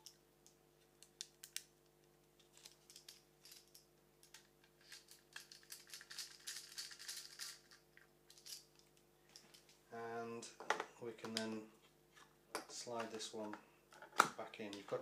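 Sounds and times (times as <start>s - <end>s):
small parts clicking and rattling: 2.3s - 9.8s.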